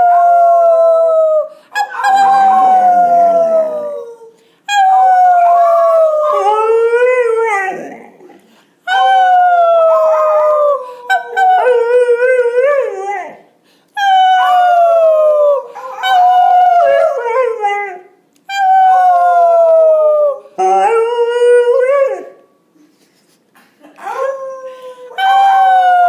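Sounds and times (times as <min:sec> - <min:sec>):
people howling: 0:00.0 - 0:08.0, 0:14.1 - 0:17.7
puppy howling: 0:00.0 - 0:13.4, 0:14.0 - 0:22.3, 0:24.0 - 0:26.0.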